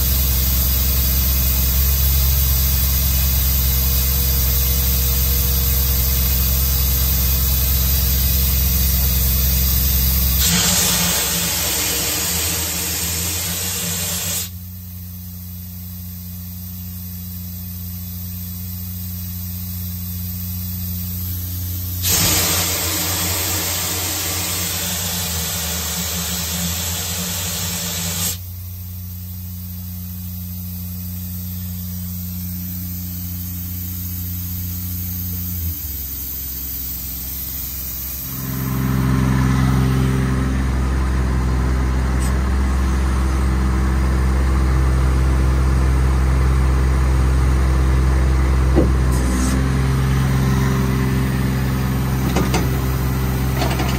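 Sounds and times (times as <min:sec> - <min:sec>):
compressed air hissing: 0:00.0 - 0:14.6, 0:16.0 - 0:40.1, 0:48.8 - 0:53.9
diesel engine running: 0:00.0 - 0:14.6, 0:20.9 - 0:28.4, 0:33.7 - 0:53.9
engine click: 0:52.2 - 0:53.9.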